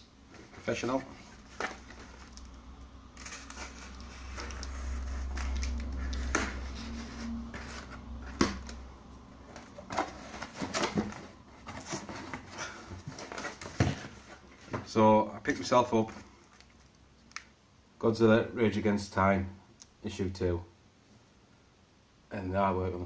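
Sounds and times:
packaging scraping and rustling: 0:00.3 - 0:14.9.

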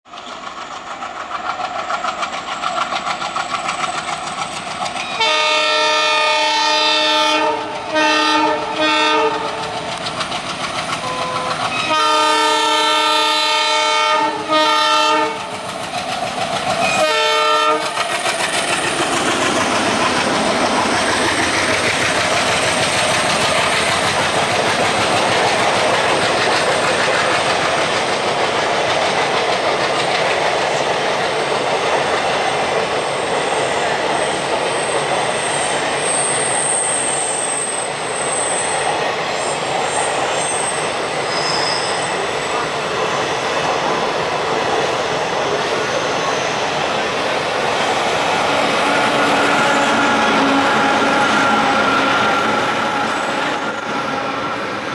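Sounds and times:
diesel locomotive working hard: 0:00.1 - 0:54.9
locomotive horn blasts: 0:05.2 - 0:09.5, 0:11.0 - 0:15.5, 0:16.9 - 0:18.0.

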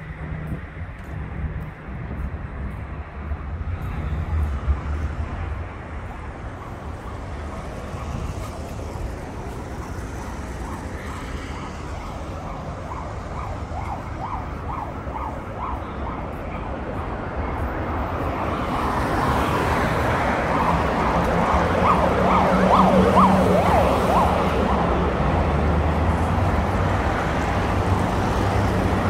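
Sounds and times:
passing vehicles rumble: 0:00.0 - 0:29.0
distant emergency siren: 0:06.3 - 0:25.9.

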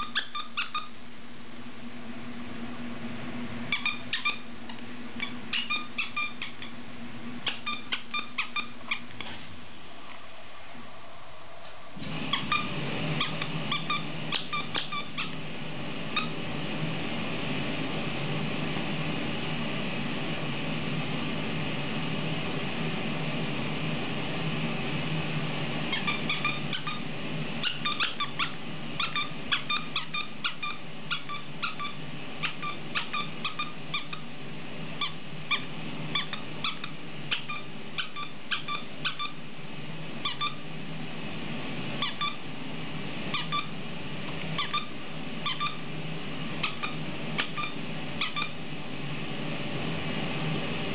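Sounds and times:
squeaky toy squeaking: 0:00.0 - 0:00.9, 0:03.7 - 0:04.4, 0:05.2 - 0:06.7
low hum: 0:00.0 - 0:50.9.

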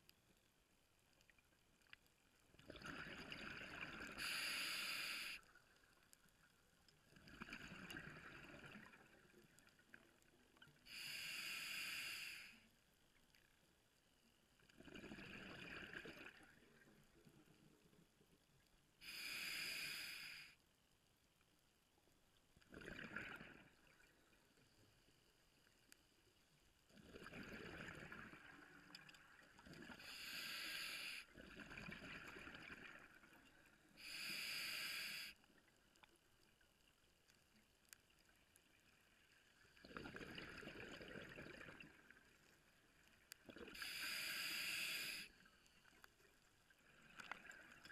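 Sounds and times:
regulator inhale hisses: 0:04.2 - 0:05.5, 0:10.9 - 0:12.7, 0:19.0 - 0:20.6, 0:29.9 - 0:31.3, 0:34.0 - 0:35.4, 0:43.7 - 0:45.5
exhaled bubbles rumbling: 0:39.8 - 0:42.0.

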